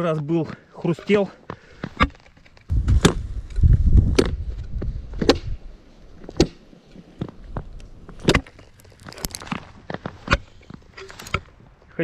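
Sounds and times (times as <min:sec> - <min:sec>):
low rumble: 0:02.7 - 0:05.2.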